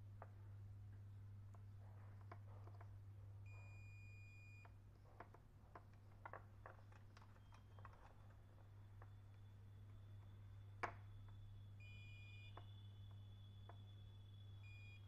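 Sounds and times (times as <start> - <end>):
low steady hum: 0.0 - 15.0
multimeter beep: 3.5 - 4.7, 9.1 - 15.0.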